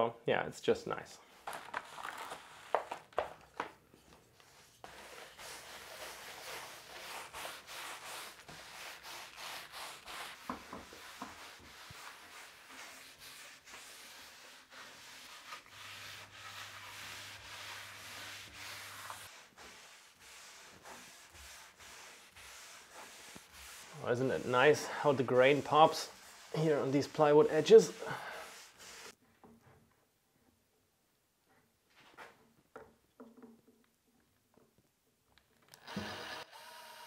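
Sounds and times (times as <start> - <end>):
hand pad rubbing on plywood: 4.4 - 29.2.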